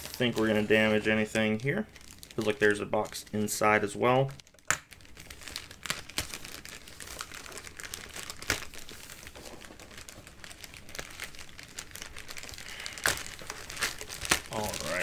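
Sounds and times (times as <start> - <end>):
plastic bag crackles: 0.0 - 15.0
plastic bag crinkling: 0.0 - 15.0.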